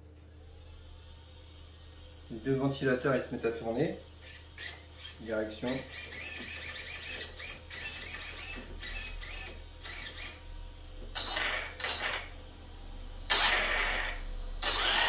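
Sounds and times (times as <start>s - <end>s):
electric motor high whine: 3.7s - 15.0s
steering servo whirring: 4.2s - 10.5s, 13.3s - 15.0s.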